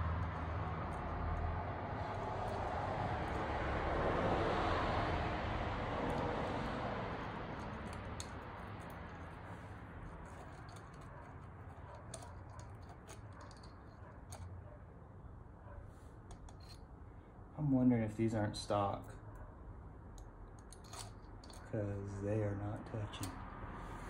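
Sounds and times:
vehicle passing: 0:00.0 - 0:14.7, 0:21.6 - 0:24.0.

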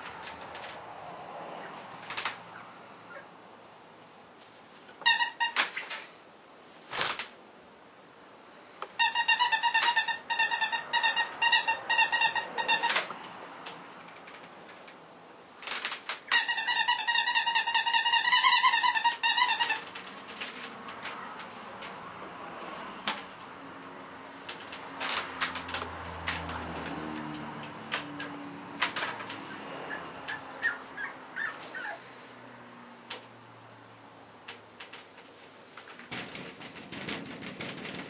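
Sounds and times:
squeaky toy squeaks: 0:05.0 - 0:05.7, 0:09.0 - 0:13.1, 0:16.3 - 0:19.9, 0:29.9 - 0:32.0.

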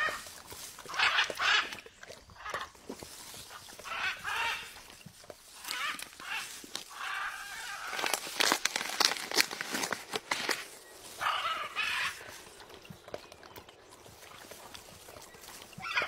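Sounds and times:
rustling: 0:00.0 - 0:12.6
macaw harsh calls: 0:03.8 - 0:04.9, 0:05.6 - 0:08.3, 0:11.1 - 0:12.3.

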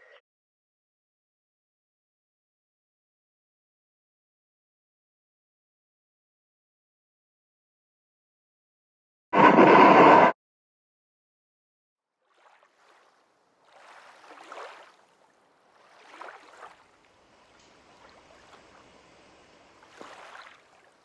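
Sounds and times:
faint rushing water: 0:12.2 - 0:21.0.

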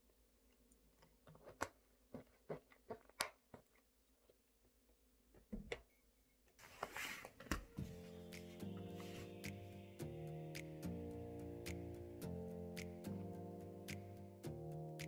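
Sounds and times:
brief rustling scrape: 0:06.6 - 0:07.4.

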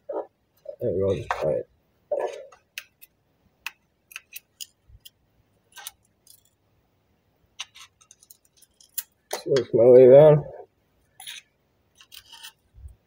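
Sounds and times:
screwdriver clicking and scraping metal: 0:04.1 - 0:06.5, 0:07.6 - 0:09.2, 0:11.2 - 0:12.7.

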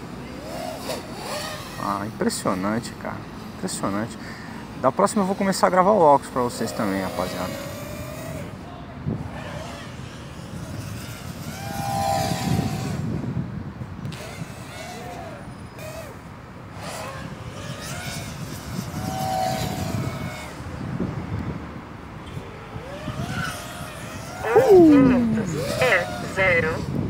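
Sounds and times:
drone motors whining: 0:00.0 - 0:02.0, 0:06.4 - 0:08.6, 0:09.2 - 0:13.1, 0:14.0 - 0:20.6, 0:22.2 - 0:26.9
wind rumble on microphone: 0:07.6 - 0:16.1, 0:16.7 - 0:27.0.

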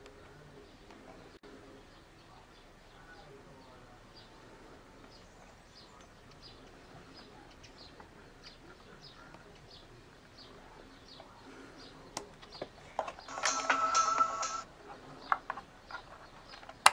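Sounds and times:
sharp click: 0:13.3 - 0:14.6.

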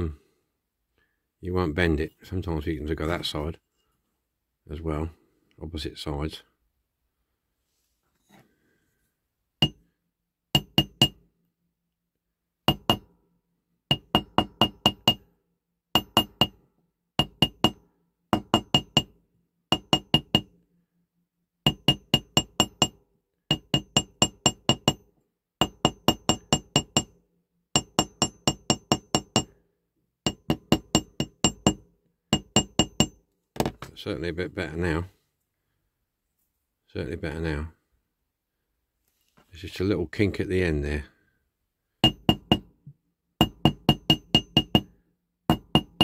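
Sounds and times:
small hammer tapping metal: 0:09.6 - 0:09.8, 0:10.6 - 0:11.2, 0:12.7 - 0:13.1, 0:13.9 - 0:15.2, 0:16.0 - 0:16.6, 0:17.2 - 0:17.8, 0:18.4 - 0:19.1, 0:19.7 - 0:20.5, 0:21.7 - 0:27.2, 0:27.8 - 0:29.5, 0:30.3 - 0:33.2, 0:42.0 - 0:42.7, 0:43.4 - 0:44.9, 0:45.5 - 0:46.0.

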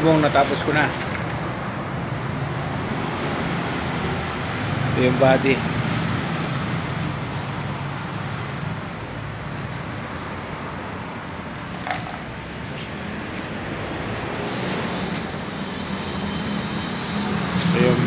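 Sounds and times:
steady machine drone: 0:10.9 - 0:18.0.

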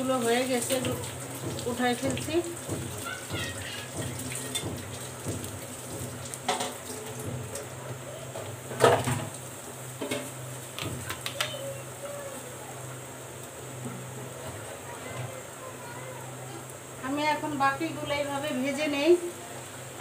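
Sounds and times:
hot oil bubbling and crackling: 0:00.0 - 0:20.0.

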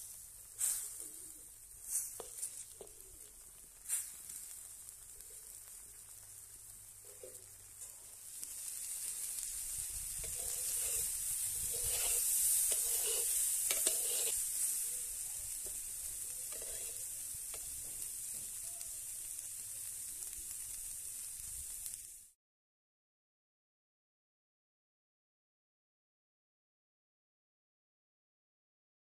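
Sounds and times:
vegetables sizzling in oil: 0:00.0 - 0:22.4
metal spatula scraping pan: 0:10.2 - 0:14.8, 0:15.6 - 0:17.8.

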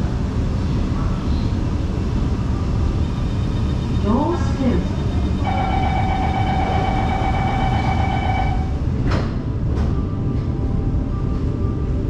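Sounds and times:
train rumble in tunnel: 0:00.0 - 0:12.0
electric whine: 0:05.0 - 0:08.8.

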